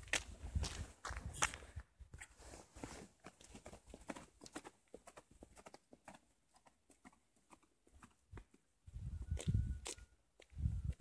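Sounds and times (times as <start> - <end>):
footsteps on concrete: 0.0 - 11.0.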